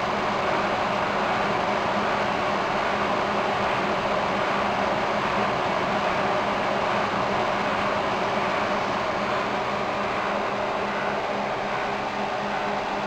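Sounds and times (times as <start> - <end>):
server fans whooshing: 0.0 - 13.0.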